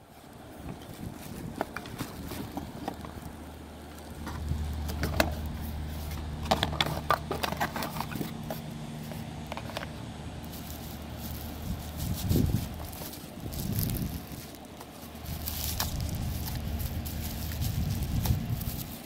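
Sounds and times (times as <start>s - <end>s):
cardboard and paper rustling: 0.0s - 19.0s
low motor hum: 0.0s - 19.0s.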